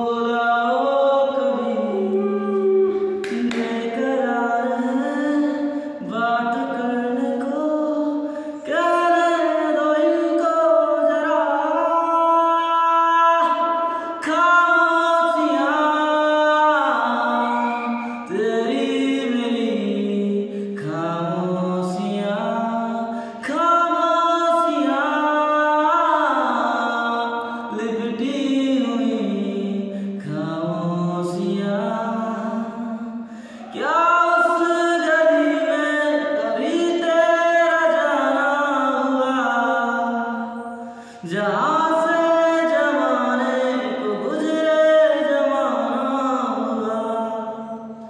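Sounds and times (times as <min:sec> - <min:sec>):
man singing unaccompanied: 0:00.0 - 0:48.0.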